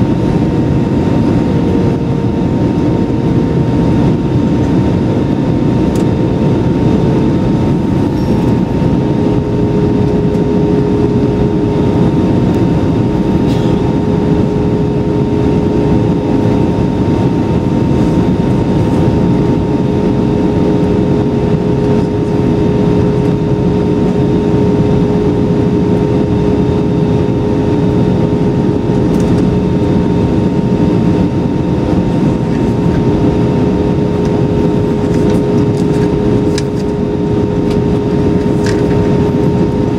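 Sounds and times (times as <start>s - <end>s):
aircraft engines and airflow roar: 0.0s - 39.9s
constant hum: 0.0s - 39.9s.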